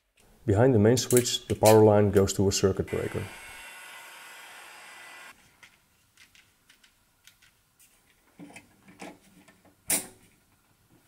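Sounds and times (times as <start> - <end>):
heat gun hissing: 2.9 - 5.3
plastic parts clicking and knocking: 5.6 - 10.2.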